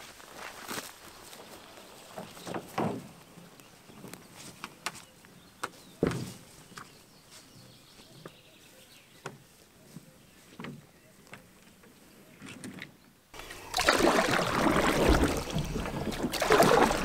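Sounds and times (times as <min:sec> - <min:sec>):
footsteps on grass: 0:00.0 - 0:02.5
canoe dragged across grass: 0:13.4 - 0:17.0
canoe hull thump: 0:13.9 - 0:17.0.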